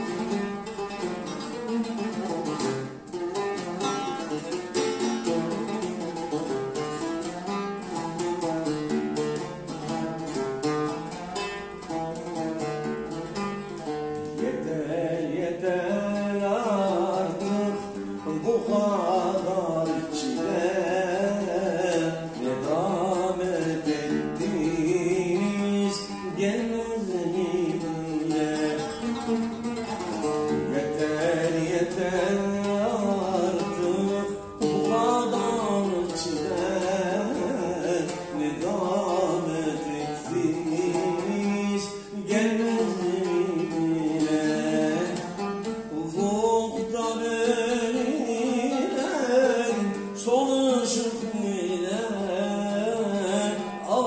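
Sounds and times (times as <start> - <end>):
oud melody: 0.0 - 54.0
man singing: 14.3 - 54.0.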